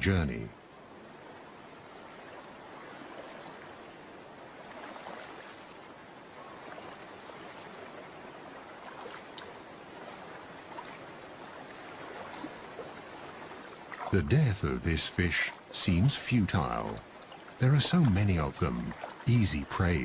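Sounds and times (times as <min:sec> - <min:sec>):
stream water running over rocks: 0:00.0 - 0:20.0
small water splashes: 0:00.9 - 0:20.0.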